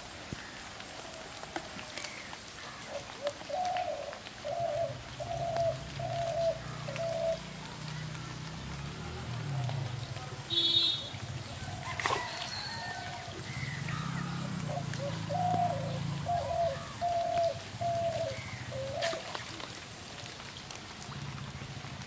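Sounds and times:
dove cooing: 1.9s - 7.6s, 11.7s - 19.4s.

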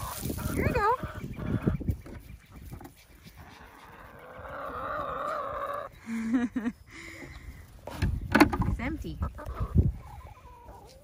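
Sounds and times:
hens calling: 0.0s - 6.1s, 9.0s - 11.0s.

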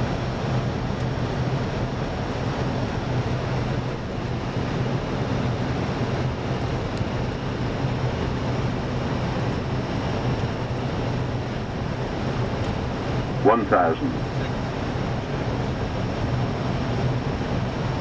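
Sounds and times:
aircraft engine noise: 0.0s - 18.0s
constant low hum: 0.0s - 18.0s.

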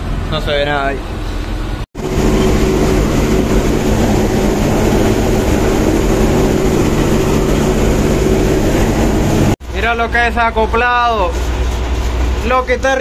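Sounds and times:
combine harvester drone: 1.0s - 9.8s.

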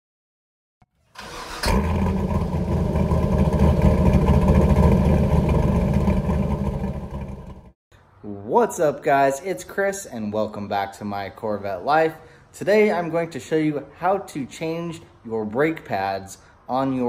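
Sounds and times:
car engine starting: 1.0s - 7.7s
car engine idling: 1.2s - 7.7s.

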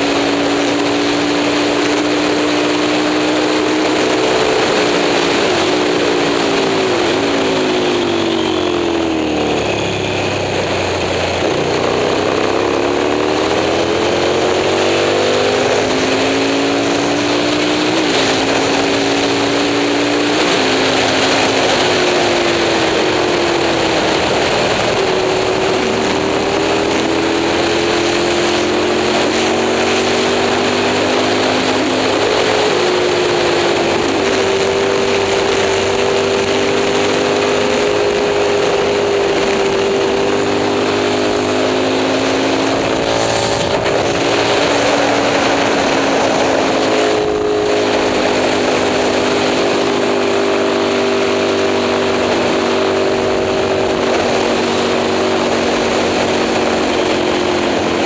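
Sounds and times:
racing motorcycle engine revving: 0.0s - 58.0s.

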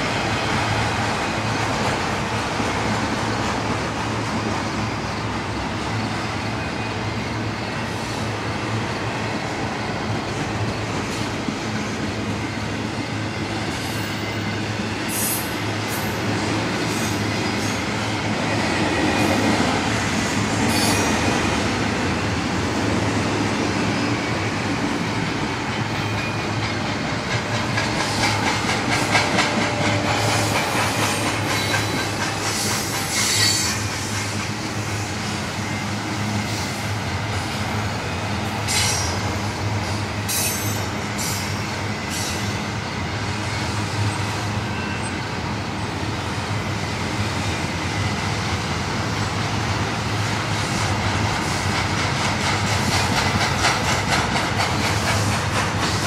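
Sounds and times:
train wheels rumbling on rails: 0.0s - 56.0s.

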